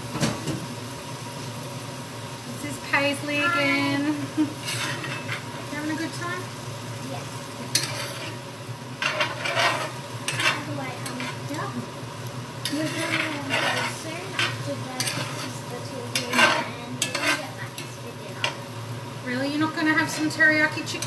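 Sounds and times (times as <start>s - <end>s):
food sizzling in a frying pan: 0.0s - 21.0s
steady low hum: 1.6s - 21.0s
metal spoon scraping a pan: 4.5s - 6.1s, 7.6s - 11.7s, 12.6s - 18.6s, 19.7s - 21.0s.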